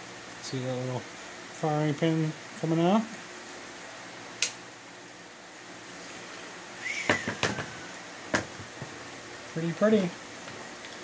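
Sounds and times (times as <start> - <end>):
knocks on hard plastic case: 8.3 - 8.9.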